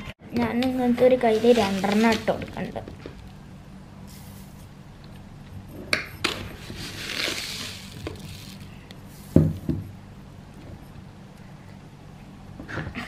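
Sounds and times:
sugar rustling scrape: 1.2 - 2.4, 6.6 - 9.4.

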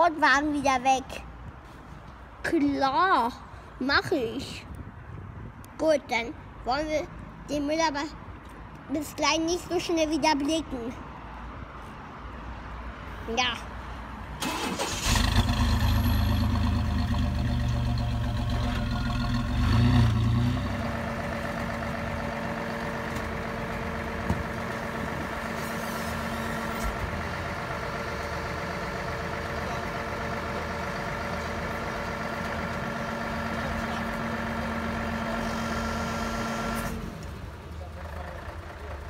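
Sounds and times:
truck engine idling: 14.4 - 39.0.

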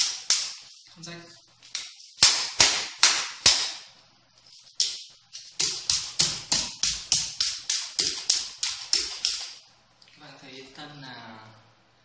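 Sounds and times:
chainmail rings jingling: 0.0 - 2.2, 4.2 - 9.7, 10.3 - 11.6
knife striking chainmail: 4.5 - 9.6.

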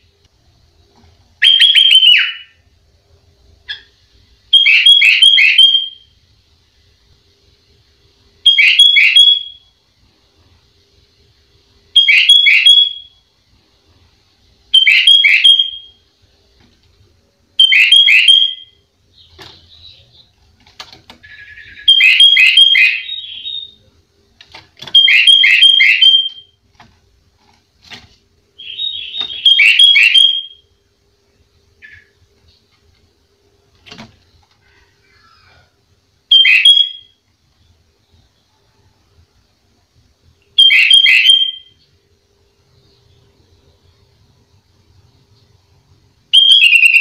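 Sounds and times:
bird whistling song phrases: 1.4 - 2.6, 14.8 - 15.9, 21.2 - 23.8, 24.9 - 26.5, 28.6 - 30.6, 40.6 - 41.8, 46.3 - 47.0
faint bird chirps: 17.6 - 24.0, 31.8 - 32.8, 34.6 - 39.4.

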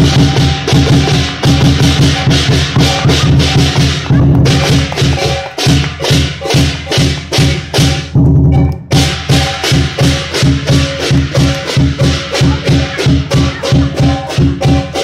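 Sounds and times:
crashing cymbals: 0.0 - 8.2, 8.9 - 15.0
big drum strokes: 0.0 - 15.0.

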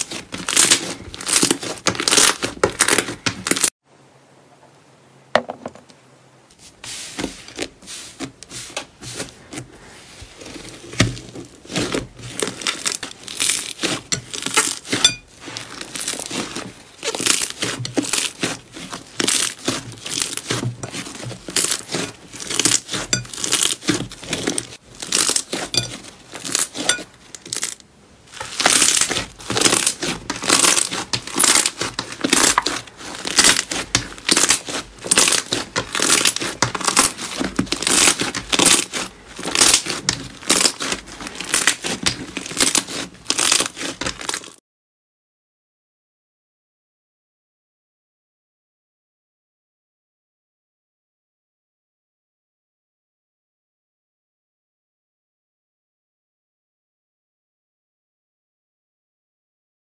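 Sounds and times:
hands squishing crackly slime: 0.0 - 3.7, 7.5 - 44.6.

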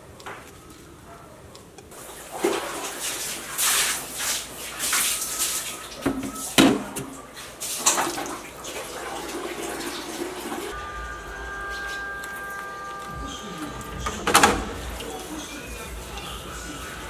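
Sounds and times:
water splashing: 0.0 - 17.0
sponge scrubbing plate: 2.0 - 17.0
steady tones: 10.7 - 17.0.

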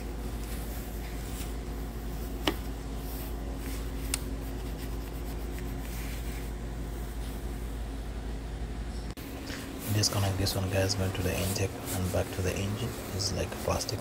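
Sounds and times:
steady low hum: 0.0 - 14.0
hands rubbing plastic connectors: 2.3 - 6.4.

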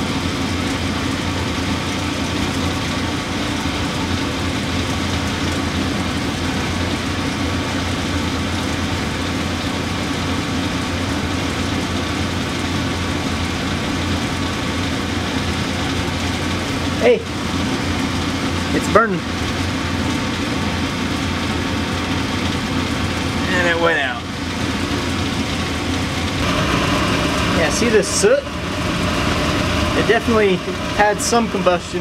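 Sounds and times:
motor humming and whirring: 24.6 - 32.0.

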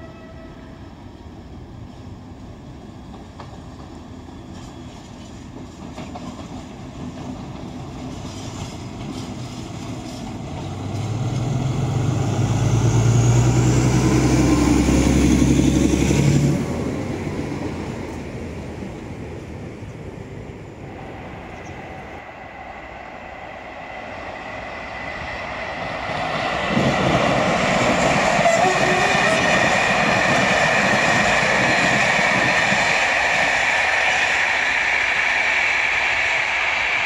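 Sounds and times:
diesel locomotive engine throbbing: 9.0 - 17.7, 20.6 - 37.0.

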